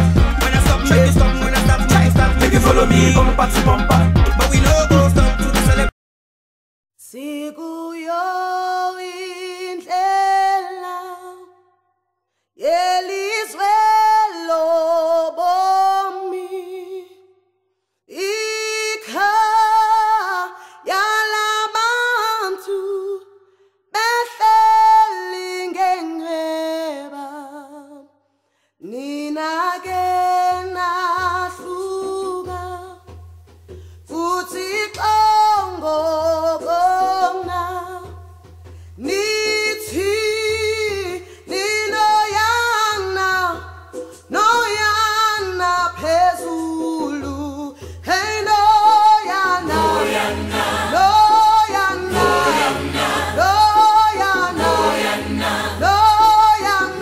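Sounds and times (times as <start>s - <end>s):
low pulsing bass tone: 0.0s - 4.4s
woman singing unaccompanied: 7.0s - 11.6s, 12.6s - 17.2s, 18.1s - 23.3s, 24.0s - 28.1s, 28.8s - 33.1s, 34.1s - 38.2s, 39.0s - 57.0s.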